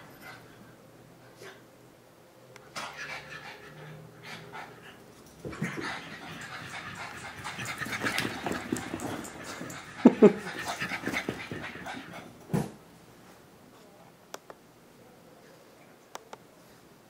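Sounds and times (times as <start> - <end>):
puppies scuffling and scrabbling: 5.0 - 12.8.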